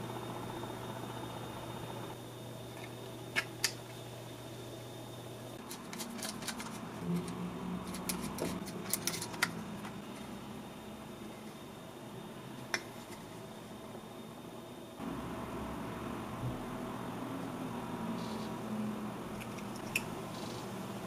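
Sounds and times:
screwdriver clicking and scraping: 5.6 - 6.8, 7.8 - 9.6.

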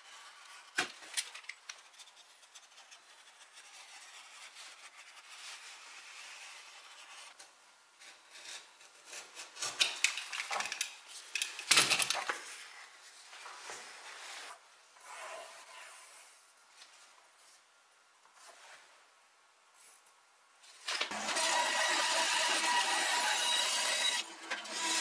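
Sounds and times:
pencil scratching: 1.8 - 7.4.

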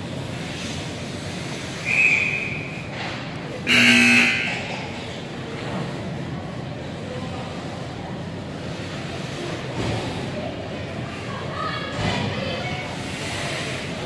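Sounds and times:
harsh buzzer: 3.7 - 4.7
arena hum: 3.7 - 4.8.

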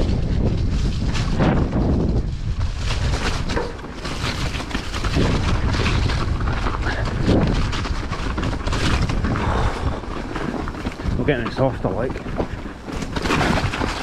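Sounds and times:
bike rattling over bumps: 0.0 - 14.0
bike tyres squelching through mud: 0.0 - 14.0
wind buffeting microphone: 0.0 - 14.0.

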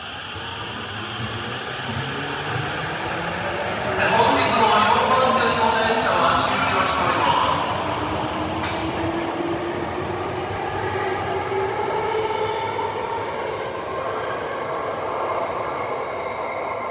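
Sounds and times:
subway train motors whining: 0.0 - 16.9.

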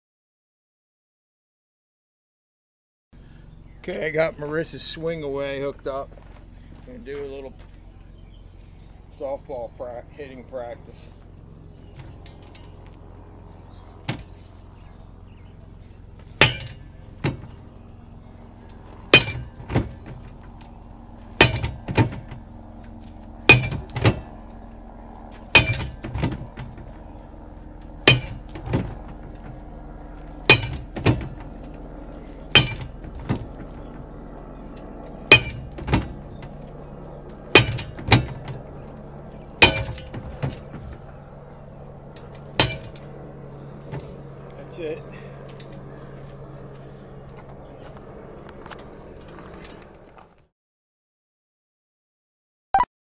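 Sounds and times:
bat hitting softball: 16.4 - 17.5, 19.1 - 20.1, 21.4 - 22.3, 23.5 - 24.3, 28.0 - 29.0, 30.5 - 31.3, 32.6 - 33.4, 37.6 - 38.5, 39.6 - 40.6.

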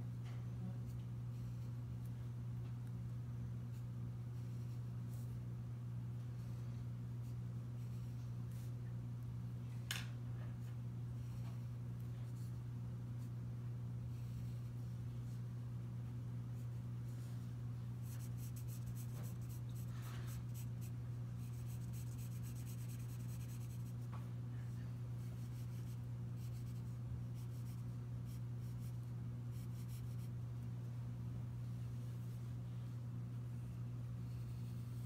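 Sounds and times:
steady low hum: 0.0 - 35.0
pencil scratching on paper: 18.0 - 24.1, 25.2 - 30.3.

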